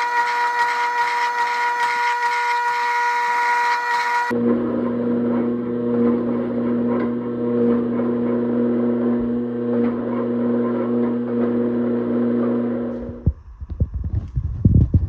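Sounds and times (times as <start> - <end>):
hydraulic press humming: 0.0 - 13.3.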